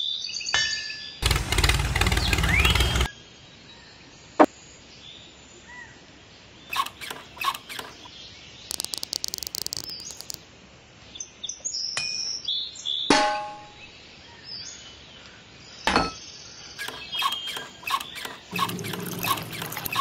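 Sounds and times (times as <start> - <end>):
click of model parts: 6.7 - 8.1, 8.7 - 10.4
ticking of parts fitted together: 8.7 - 10.4.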